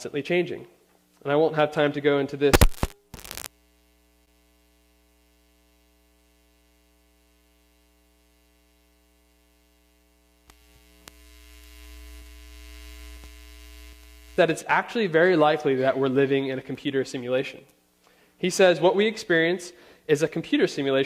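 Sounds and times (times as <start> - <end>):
electrical mains hum: 0.0 - 21.0
faint steady hum: 0.0 - 21.0
clicks: 2.6 - 3.5.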